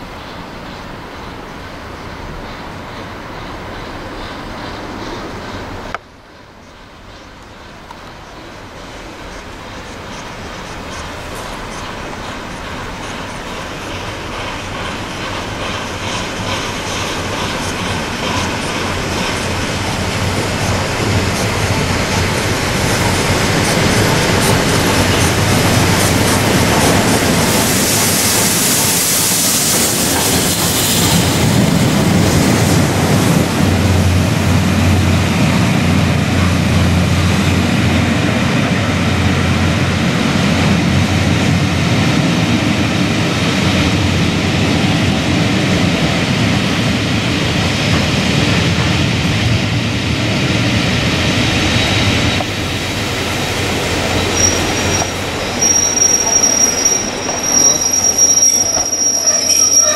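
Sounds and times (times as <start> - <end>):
train rumbling on track: 0.0 - 59.9
rushing hiss: 7.0 - 40.7, 42.0 - 59.9
high wheel squeal: 54.0 - 59.9.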